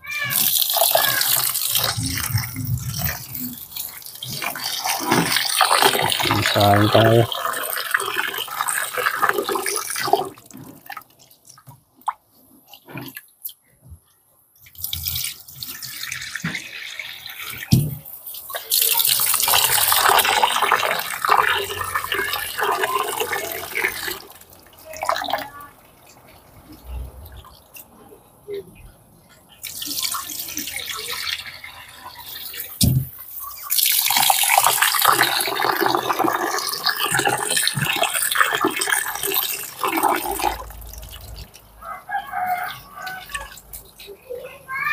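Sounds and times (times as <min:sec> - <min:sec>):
tap water splashing into pot: 0:00.3 - 0:11.0, 0:32.4 - 0:41.6.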